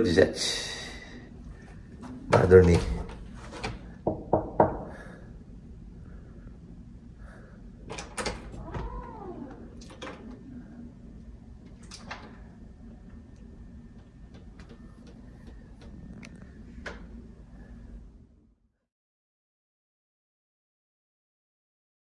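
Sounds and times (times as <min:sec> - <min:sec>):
low steady hum: 0:00.0 - 0:18.8
knocking on door: 0:04.0 - 0:05.0.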